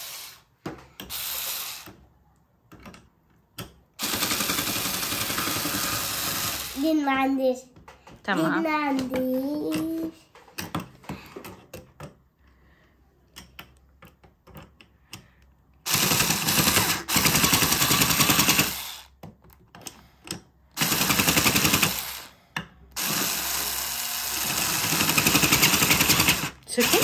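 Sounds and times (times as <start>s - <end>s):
cordless screwdriver buzzing: 15.9s - 19.1s, 23.0s - 27.0s.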